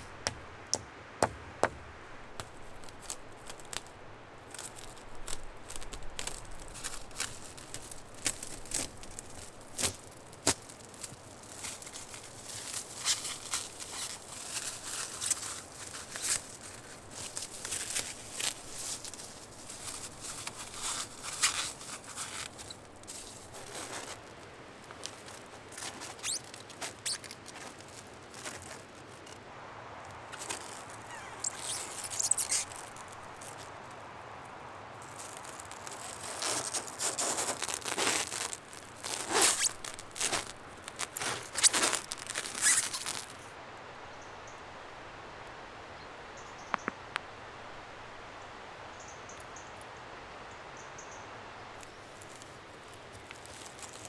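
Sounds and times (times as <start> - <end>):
plastic stretch wrap crinkling: 2.2 - 29.5, 30.2 - 43.5, 51.8 - 54.0
squeaky film stretching: 2.4 - 3.9, 4.5 - 24.3, 24.9 - 29.4, 30.3 - 33.7, 35.0 - 43.5.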